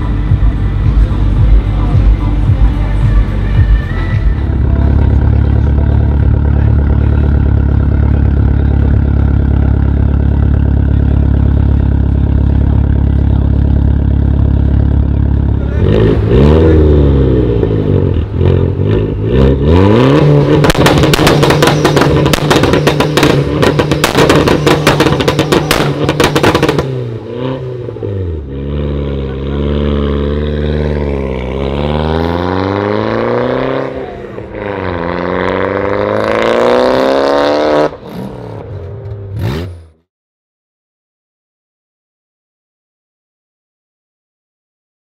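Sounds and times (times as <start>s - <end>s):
car engine revving: 0.0s - 40.1s
exhaust crackling and popping: 4.6s - 16.8s, 20.0s - 28.0s.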